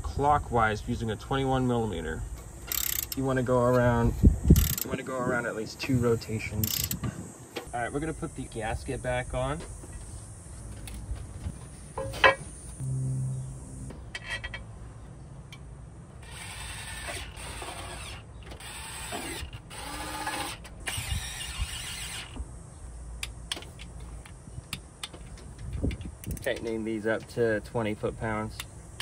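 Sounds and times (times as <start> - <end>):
ratchet wrench clicking: 2.7 - 3.2, 4.6 - 4.9, 6.6 - 7.0.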